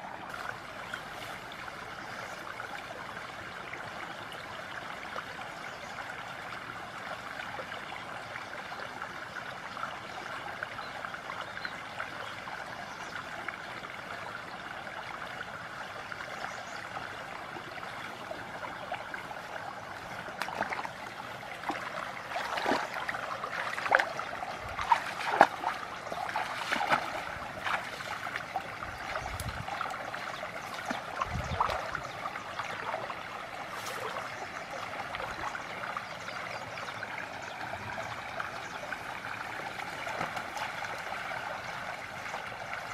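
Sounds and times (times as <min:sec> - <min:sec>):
stream trickling: 0:00.0 - 0:42.9
small splashes: 0:18.2 - 0:35.5.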